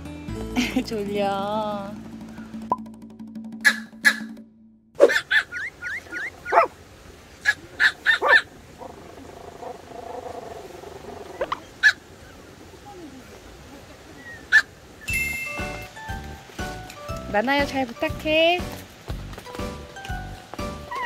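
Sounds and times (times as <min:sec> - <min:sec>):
small dog yapping: 0:05.0 - 0:06.7, 0:07.4 - 0:08.5.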